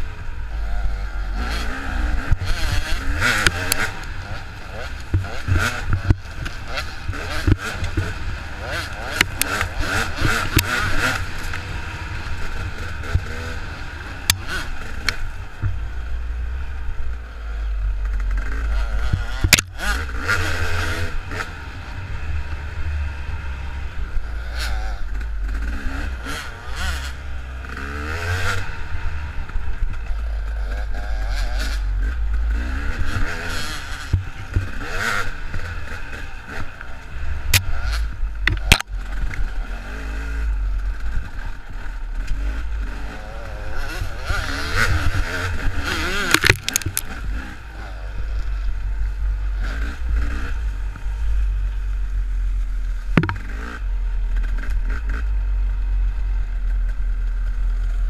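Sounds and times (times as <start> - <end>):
dirt bike engines revving: 0.0 - 58.0
sharp knocks: 46.3 - 47.1, 53.2 - 53.5.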